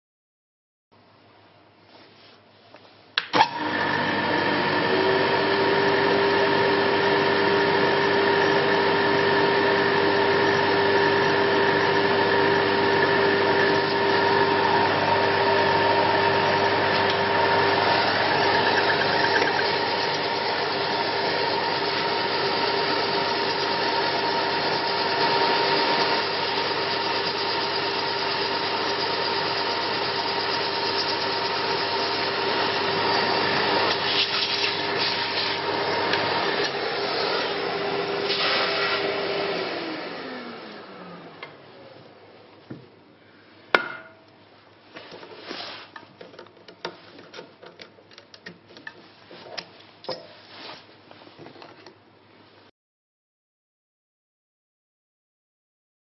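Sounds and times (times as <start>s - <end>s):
lathe whine and hum: 3.4s - 42.4s.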